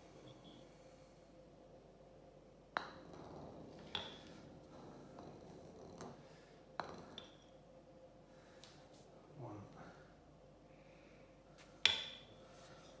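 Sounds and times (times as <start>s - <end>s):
ball rolling on tile floor: 2.7s - 7.7s.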